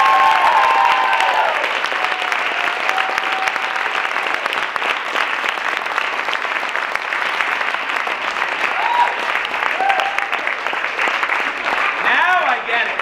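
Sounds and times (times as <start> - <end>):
whoops and cheers: 0.0 - 4.4, 8.6 - 10.5
audience applauding: 0.0 - 13.0.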